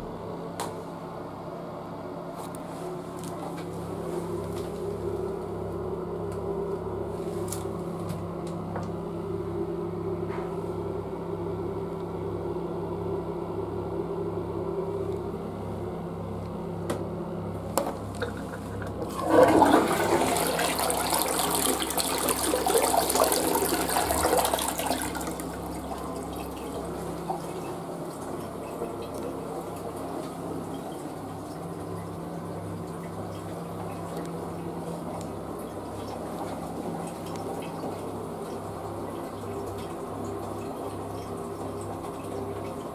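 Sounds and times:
steady low hum: 0:00.0 - 0:42.9
toilet flushing: 0:17.6 - 0:42.9.

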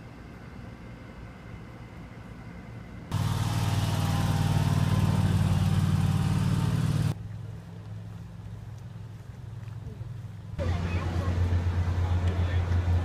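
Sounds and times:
motor humming: 0:03.1 - 0:07.1.

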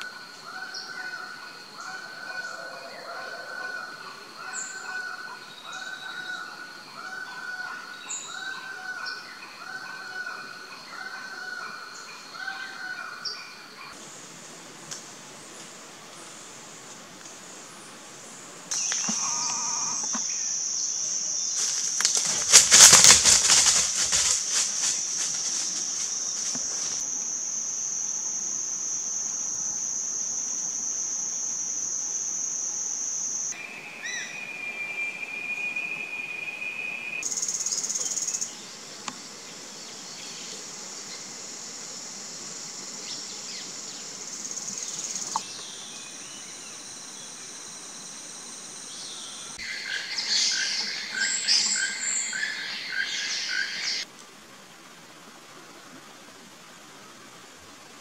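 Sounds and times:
insects droning: 0:00.0 - 0:58.0
rustle through leaves and brush: 0:18.7 - 0:27.5.

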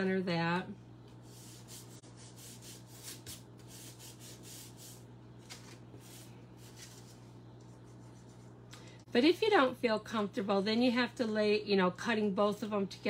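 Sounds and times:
hand rubbing paper: 0:01.2 - 0:08.6.

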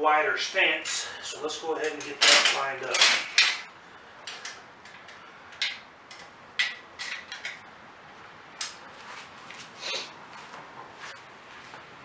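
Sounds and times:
sharp metal clanks: 0:01.8 - 0:03.7.

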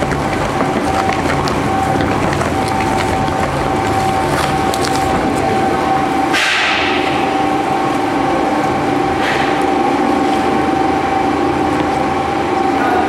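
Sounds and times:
cardboard crunching in shredder: 0:00.0 - 0:06.9
shredder droning with high whine: 0:00.0 - 0:13.0.

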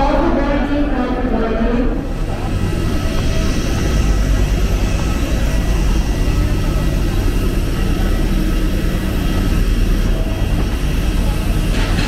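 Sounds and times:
airliner engines rumbling in cabin: 0:00.0 - 0:12.0.

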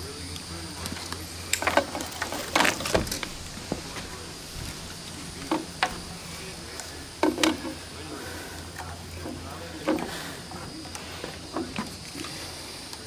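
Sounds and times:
insects chirring: 0:00.0 - 0:13.0
landing net and tool rattling: 0:01.6 - 0:06.1.

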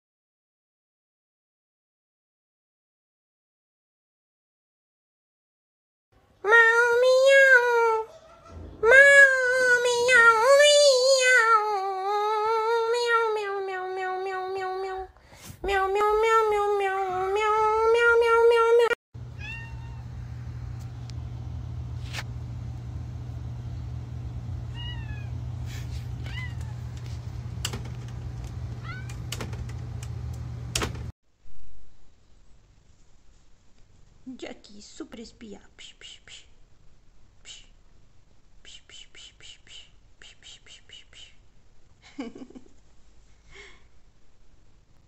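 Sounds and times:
cat yowling: 0:06.5 - 0:15.0, 0:15.7 - 0:20.1, 0:24.7 - 0:25.4, 0:26.2 - 0:26.9, 0:28.8 - 0:29.2
steady low hum: 0:19.2 - 0:31.1.

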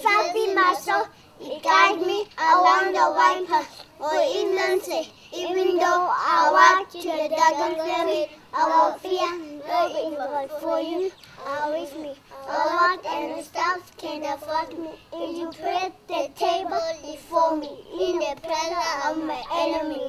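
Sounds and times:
young children singing: 0:00.0 - 0:20.0.

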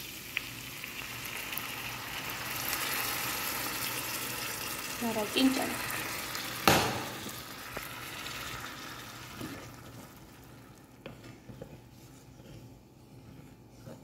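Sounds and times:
broth sizzling in hot pan: 0:00.0 - 0:11.0
wooden spatula stirring pan: 0:07.2 - 0:14.0.

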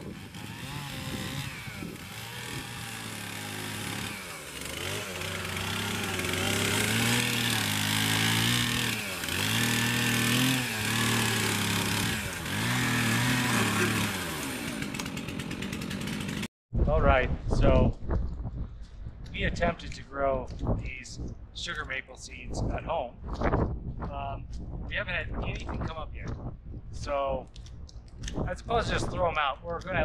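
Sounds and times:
chainsaw cutting log: 0:00.0 - 0:16.5.

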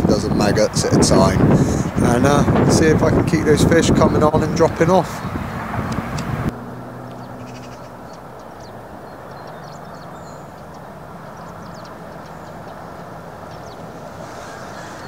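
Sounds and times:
small birds chirping: 0:07.1 - 0:15.0.

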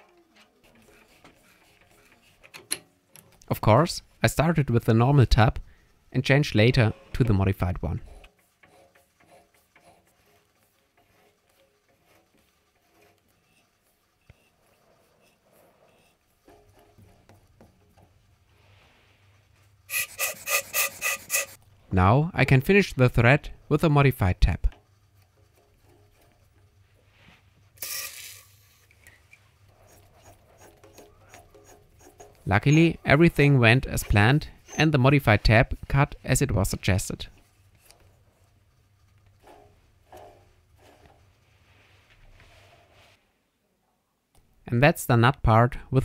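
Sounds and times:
thread tap scraping rasp: 0:19.9 - 0:21.6, 0:28.8 - 0:32.8.

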